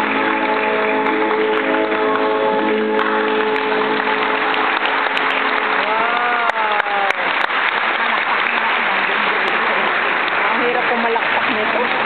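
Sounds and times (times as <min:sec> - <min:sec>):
ballet music: 0:00.0 - 0:06.5
audience applauding: 0:00.0 - 0:12.0.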